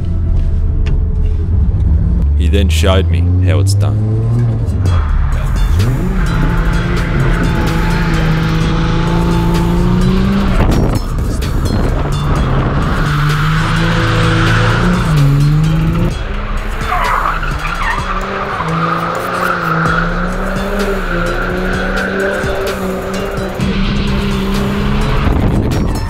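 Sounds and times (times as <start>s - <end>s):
car engine revving: 0.0s - 26.0s
tyres squealing: 16.6s - 23.7s.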